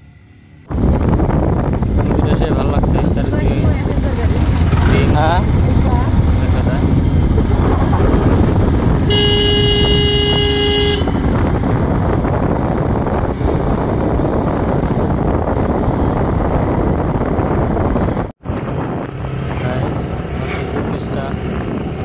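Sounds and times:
motorcycle road noise: 0.0 - 22.0
wind rushing over microphone: 0.6 - 22.0
steady horn blast: 9.1 - 11.2.

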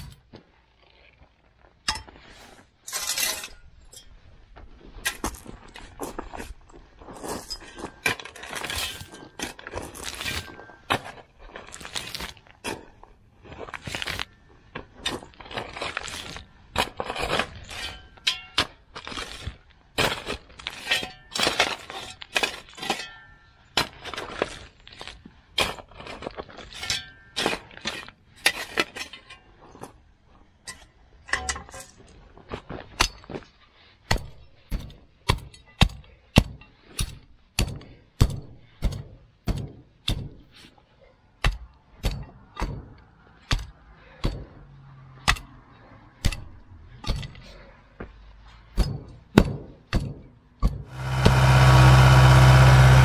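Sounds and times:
knocks and clattering impacts: 34.1 - 40.6, 41.4 - 45.5, 48.7 - 53.0.

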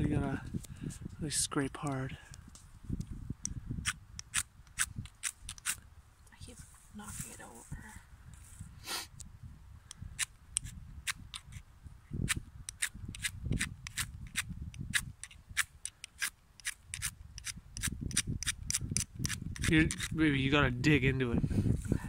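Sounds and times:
striker scraping ferrocerium rod: 12.3 - 20.2.

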